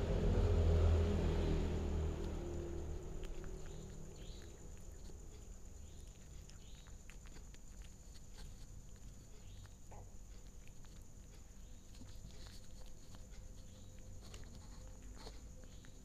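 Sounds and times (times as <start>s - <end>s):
low rumble: 0.0s - 5.3s
cat chewing and licking: 0.0s - 16.0s.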